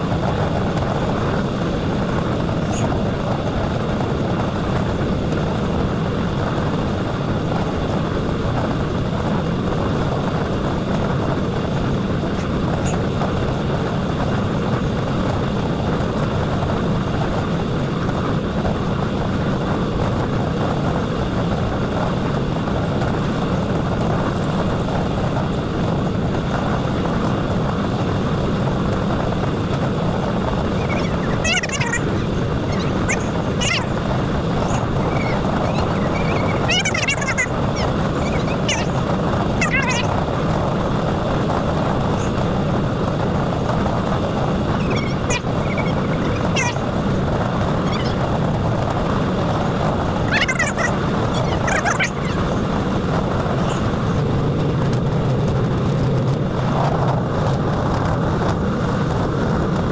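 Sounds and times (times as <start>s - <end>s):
wind rush on microphone: 0.0s - 59.9s.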